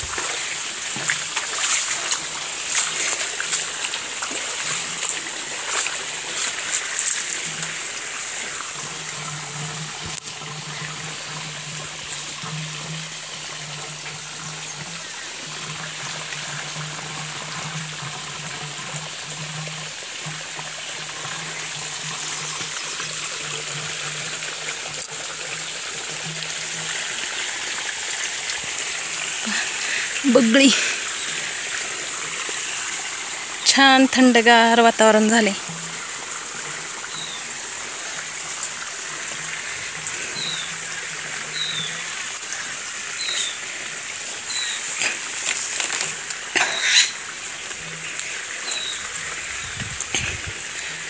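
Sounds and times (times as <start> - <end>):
splashing footsteps in water: 0.0 - 7.8
water trickling: 0.0 - 51.0.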